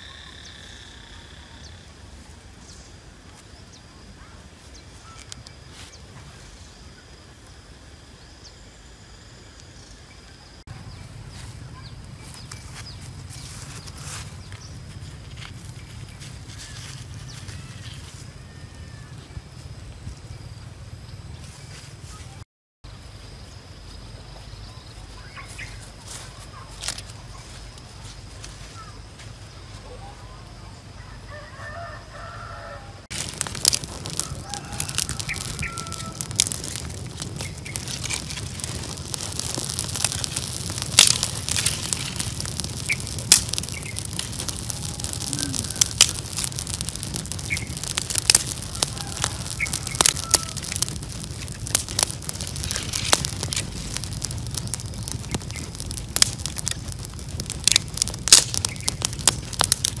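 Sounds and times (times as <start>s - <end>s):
campfire crackling and popping: 4.5s - 6.2s, 10.5s - 18.6s, 25.4s - 28.7s, 33.0s - 60.0s
rushing of flame: 33.0s - 60.0s
birds chirping: 33.1s - 60.0s.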